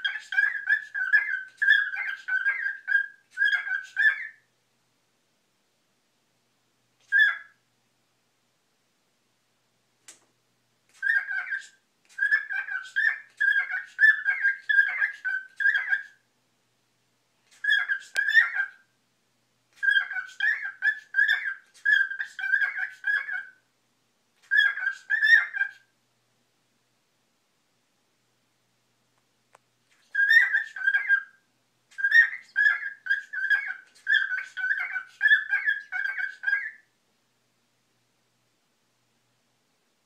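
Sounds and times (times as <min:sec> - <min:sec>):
cockatiel whistling: 0:00.0 - 0:04.4, 0:07.0 - 0:07.6, 0:11.0 - 0:16.2, 0:17.5 - 0:18.8, 0:19.8 - 0:23.6, 0:24.4 - 0:25.9, 0:30.0 - 0:36.9.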